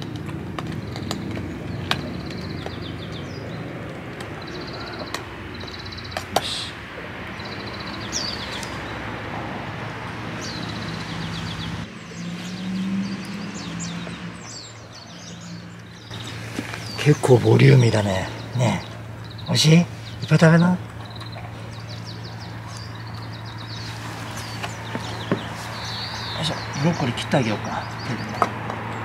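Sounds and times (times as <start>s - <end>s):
dogs eating from metal bowls: 0.0s - 6.1s
birds singing: 0.0s - 29.0s.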